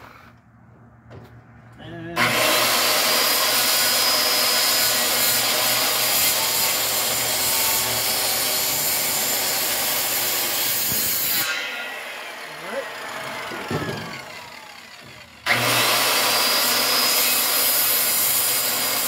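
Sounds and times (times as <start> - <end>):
circular saw cutting wood: 2.2 - 19.0.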